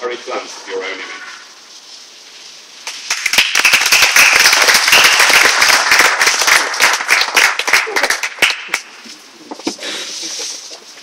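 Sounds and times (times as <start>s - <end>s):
close sharp hand clapping: 2.8s - 9.0s
small audience applauding: 2.8s - 9.0s.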